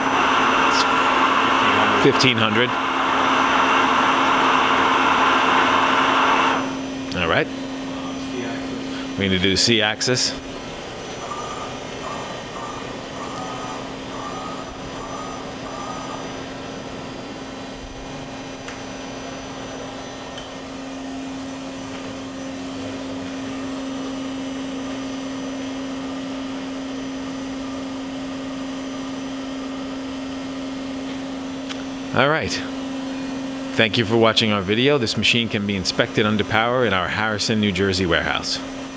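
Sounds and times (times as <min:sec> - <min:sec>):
high steady tone: 0:00.0 - 0:17.0
machine hum: 0:00.0 - 0:38.9.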